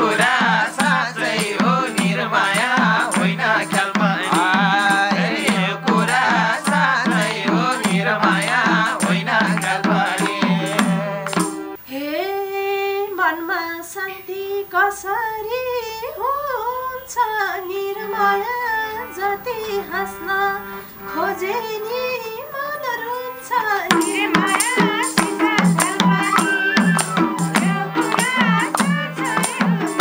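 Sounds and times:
hand drum fast rhythm: 0.0 - 11.8, 23.9 - 30.0
harmonium drone: 0.0 - 11.8, 17.6 - 30.0
tambourine: 0.0 - 11.8, 23.9 - 30.0
woman singing: 0.0 - 30.0
bamboo flute: 25.6 - 30.0.

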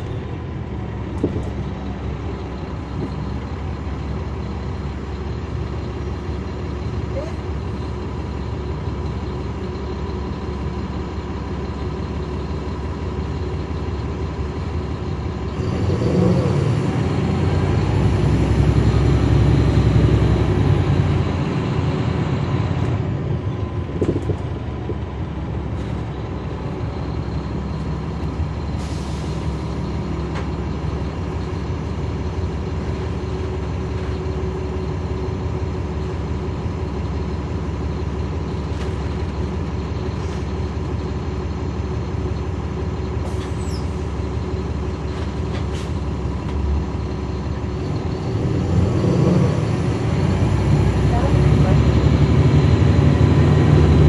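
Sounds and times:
bus diesel engine running: 0.0 - 54.0.

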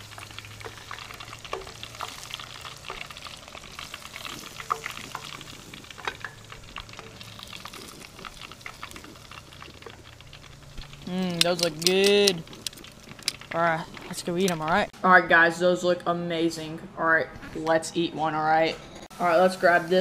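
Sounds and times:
fish deep-frying in hot oil: 0.0 - 14.9, 19.1 - 20.0.

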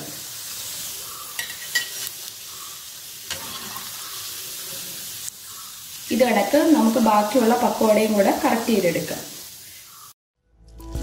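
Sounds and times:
hot oil sizzling: 0.0 - 10.2.

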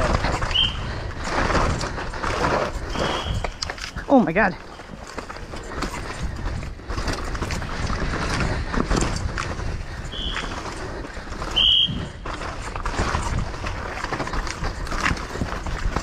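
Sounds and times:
bike chain and frame rattling: 0.0 - 16.0
tyres scrubbing dirt: 0.0 - 16.0
wind rushing over microphone: 0.0 - 16.0
shrill whistle blasts: 0.5 - 0.9, 2.9 - 3.6, 10.1 - 10.5, 11.5 - 12.1.

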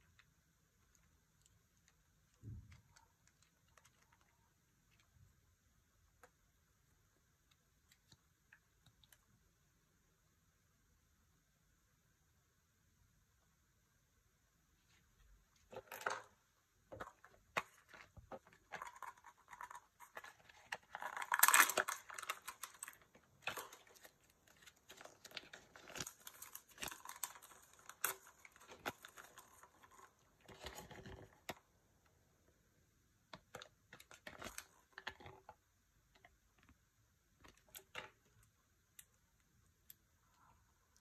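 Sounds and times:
plastic wrapping tearing and crinkling: 18.9 - 31.2.

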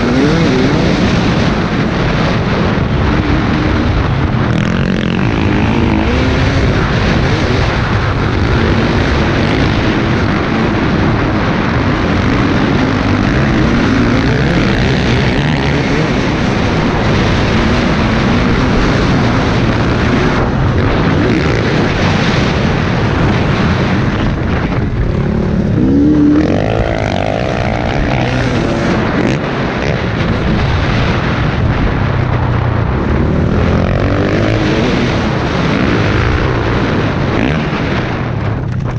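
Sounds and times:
dirt bike engine revving: 0.0 - 38.3
wind rushing over microphone: 0.0 - 38.9.

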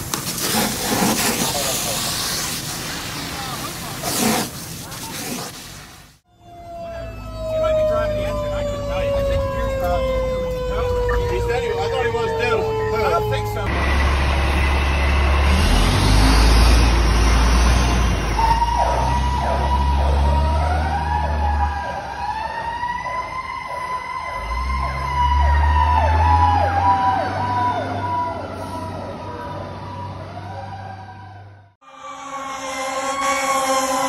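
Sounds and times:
diesel engine rumbling: 6.1 - 22.2
wailing siren with yelp: 6.3 - 13.7, 18.4 - 34.0.

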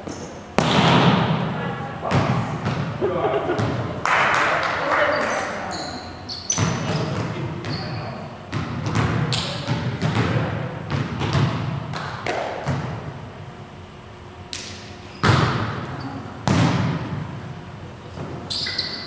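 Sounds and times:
volleyball being hit and bouncing: 0.0 - 1.5, 2.1 - 4.7, 6.5 - 7.4, 8.5 - 13.1, 14.5 - 17.3.

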